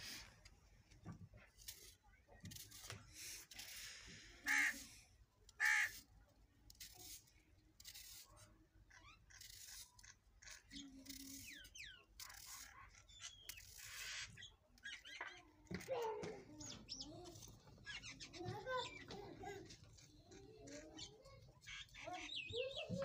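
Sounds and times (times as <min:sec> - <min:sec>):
harsh bird calls: 0:08.9 - 0:23.0.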